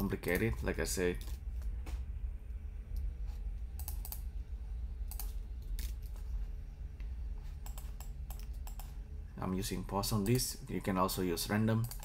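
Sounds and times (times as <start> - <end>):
steady low hum: 0.0 - 12.0
keyboard and mouse clicks: 3.7 - 4.3, 5.1 - 6.1, 7.6 - 9.0, 11.8 - 12.0.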